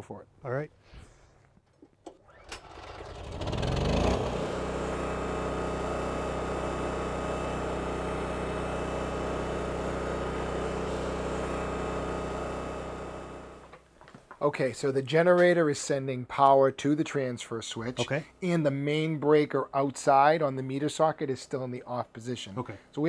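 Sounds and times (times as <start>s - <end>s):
generator engine running: 2.6s - 13.7s.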